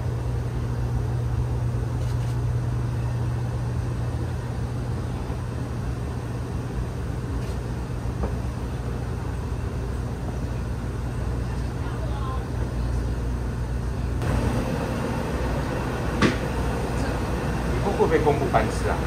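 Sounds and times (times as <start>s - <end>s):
low mechanical hum: 0.0s - 19.0s.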